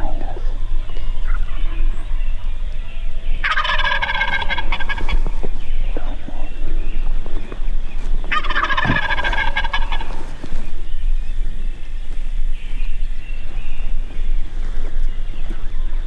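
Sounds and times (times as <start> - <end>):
turkey gobbling: 3.2 - 6.6, 8.3 - 10.6.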